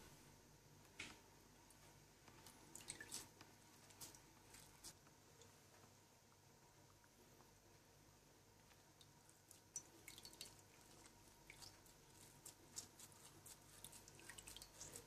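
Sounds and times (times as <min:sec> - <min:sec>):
wet squelches of soaked biscuit: 0:02.4 - 0:05.5, 0:08.7 - 0:15.0
liquid dripping into bowl: 0:09.0 - 0:11.8.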